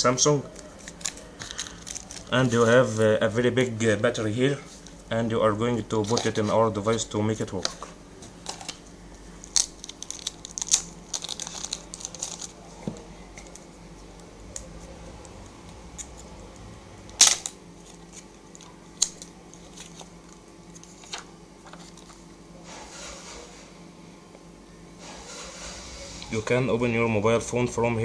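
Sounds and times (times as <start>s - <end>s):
plastic packaging crackling: 0.5s - 3.0s, 9.4s - 13.7s.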